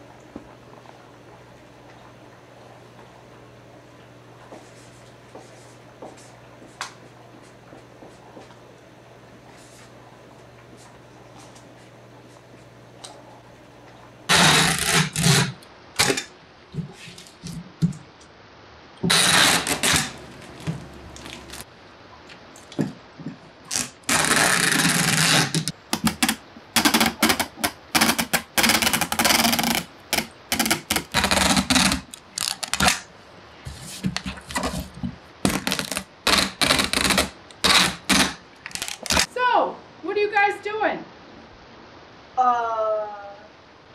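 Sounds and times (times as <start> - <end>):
packing tape ripping: 14.3 - 16.3, 19.0 - 21.6, 23.7 - 33.1, 35.4 - 39.3.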